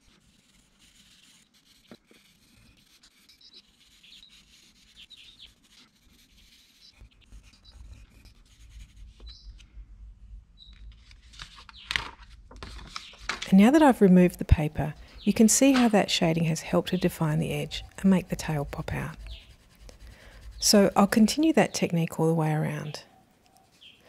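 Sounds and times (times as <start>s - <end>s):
pencil scratching on paper: 0.0s - 9.5s, 14.6s - 21.7s.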